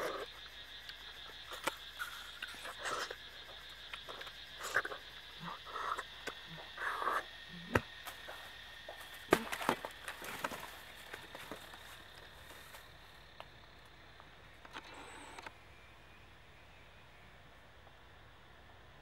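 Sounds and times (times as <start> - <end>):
sucking and biting: 1.5 - 3.2, 3.9 - 7.9
bare feet on dry straw: 8.1 - 12.9.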